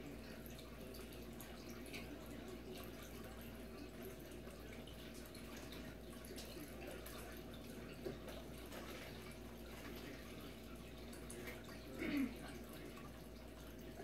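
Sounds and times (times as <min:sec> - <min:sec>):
aquarium water trickling: 0:00.0 - 0:14.0.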